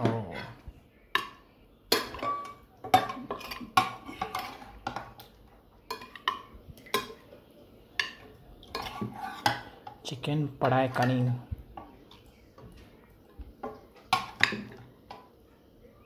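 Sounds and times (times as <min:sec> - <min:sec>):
cutlery clinking against pots: 0:01.2 - 0:07.4, 0:08.0 - 0:10.1, 0:10.8 - 0:11.9, 0:13.6 - 0:15.3.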